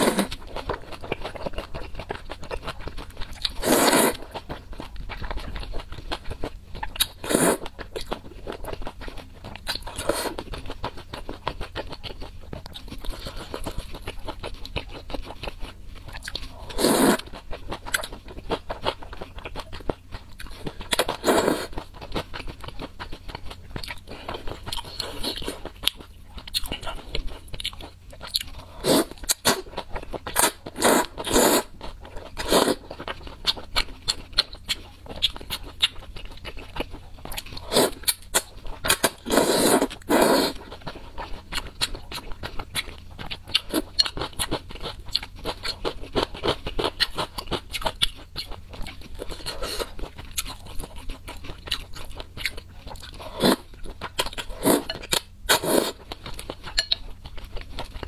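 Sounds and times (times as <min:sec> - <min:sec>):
wet chewing and mouth clicks: 0:00.0 - 0:58.0
slurping noodles: 0:03.6 - 0:04.3, 0:07.2 - 0:07.6, 0:16.7 - 0:17.2, 0:21.1 - 0:21.8, 0:28.8 - 0:29.6, 0:30.4 - 0:31.7, 0:39.0 - 0:40.6, 0:53.2 - 0:53.6, 0:55.5 - 0:56.0.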